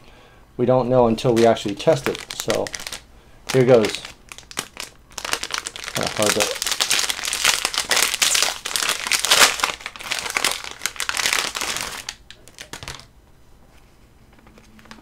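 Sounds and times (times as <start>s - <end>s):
plastic wrapper crinkling: 1.2s - 13.1s.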